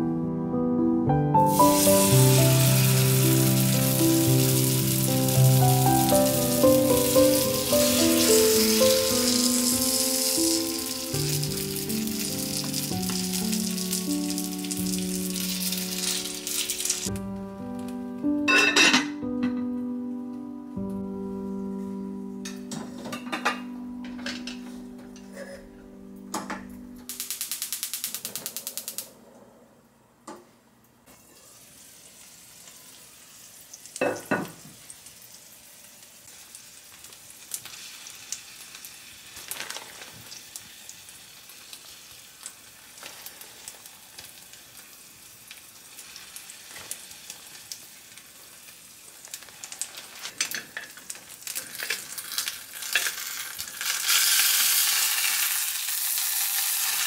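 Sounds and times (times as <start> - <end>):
food sizzling in oil: 1.4 - 17.2, 31.4 - 57.0.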